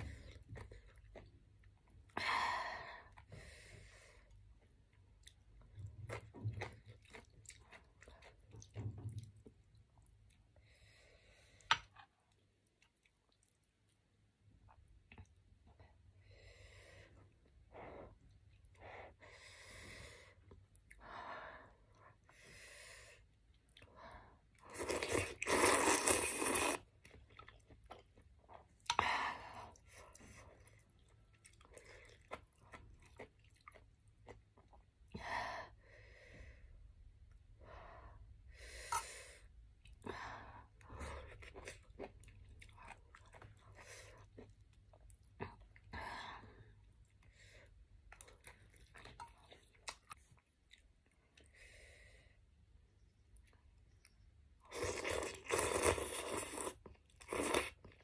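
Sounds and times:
person chewing: 0:04.6 - 0:10.5, 0:24.6 - 0:29.0, 0:30.0 - 0:34.9, 0:41.1 - 0:45.9, 0:48.1 - 0:51.5, 0:53.3 - 0:58.0
person slurping noodles: 0:24.7 - 0:26.9, 0:54.7 - 0:57.8.

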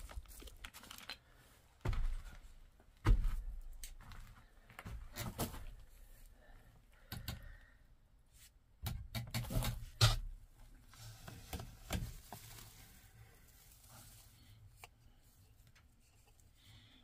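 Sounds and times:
hand rustling through straw: 0:10.8 - 0:16.3.

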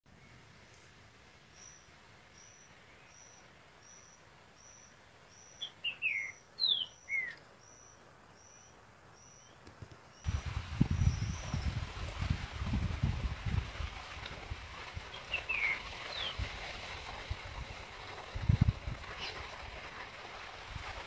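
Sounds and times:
songbird whistling phrase: 0:02.4 - 0:09.6.

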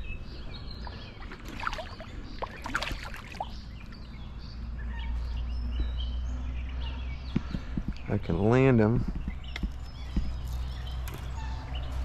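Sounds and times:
fish thrashing water splashing: 0:01.2 - 0:03.6.

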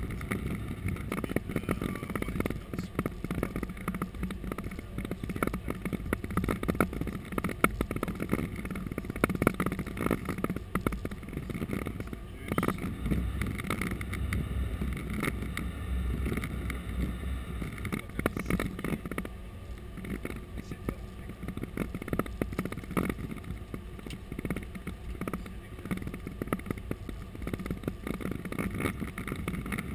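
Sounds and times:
airflow and engine rumble: 0:00.0 - 0:29.9.

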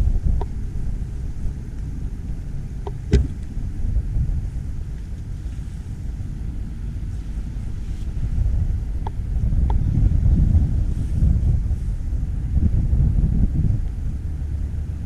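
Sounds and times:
wind buffeting microphone: 0:00.0 - 0:15.0
sharp knock: 0:03.1 - 0:03.4.

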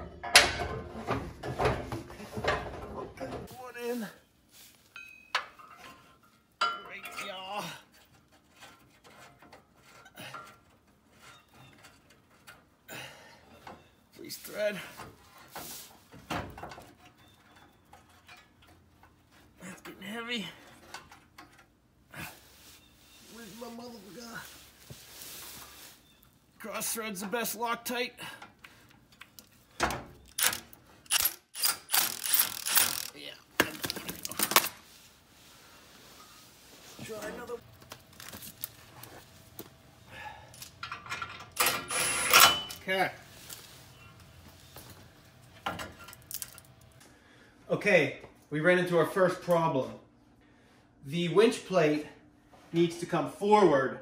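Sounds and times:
metal bolt clicks and scrapes: 0:30.2 - 0:33.2, 0:40.5 - 0:42.9.

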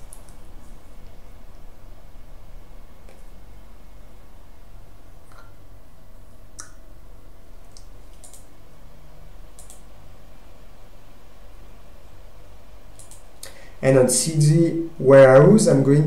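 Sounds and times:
computer mouse clicks: 0:00.0 - 0:00.4, 0:07.7 - 0:08.5, 0:09.6 - 0:09.8, 0:13.0 - 0:13.6
steady low hum: 0:00.0 - 0:16.0.

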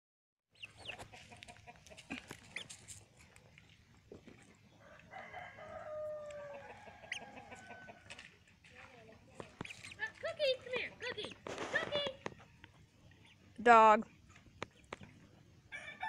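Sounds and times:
chickens peeping: 0:00.6 - 0:08.6, 0:09.3 - 0:10.2, 0:10.9 - 0:15.7
chicken long drawn-out call: 0:04.8 - 0:08.2, 0:15.7 - 0:16.0.

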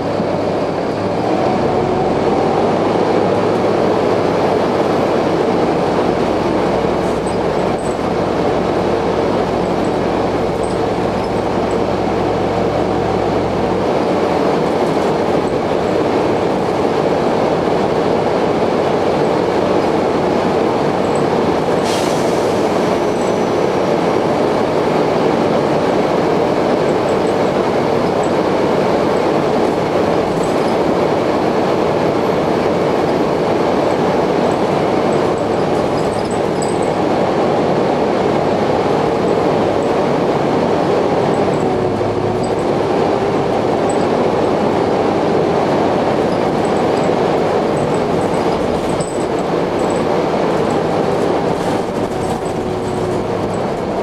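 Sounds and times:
loud whining drone: 0:00.0 - 0:13.8
bus engine and running noise: 0:00.0 - 0:54.0.

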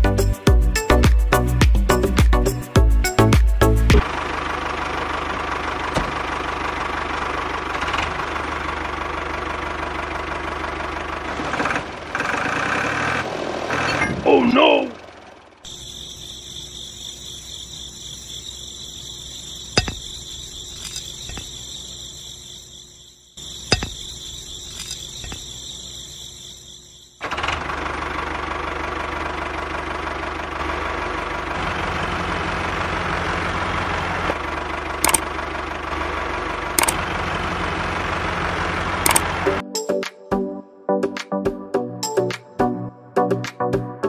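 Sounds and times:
motor running: 0:15.7 - 0:27.6
sharp clicks: 0:19.8 - 0:21.5, 0:24.7 - 0:25.5, 0:35.0 - 0:35.3, 0:36.8 - 0:37.0, 0:39.0 - 0:39.3.

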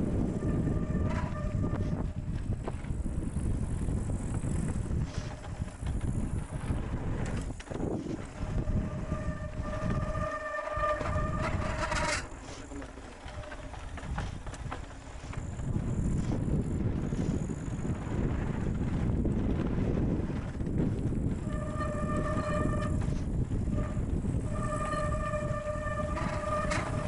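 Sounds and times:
disc brake squealing: 0:00.0 - 0:02.1, 0:08.2 - 0:13.8, 0:21.4 - 0:27.0
wind buffeting: 0:00.0 - 0:27.0.

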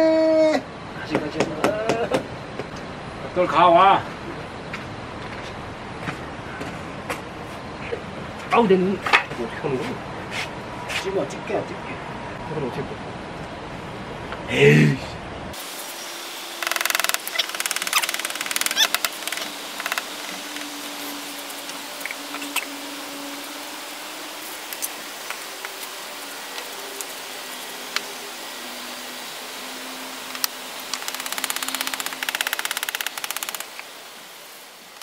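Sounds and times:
steady hiss: 0:15.6 - 0:35.0
fast rattle: 0:31.0 - 0:33.7.

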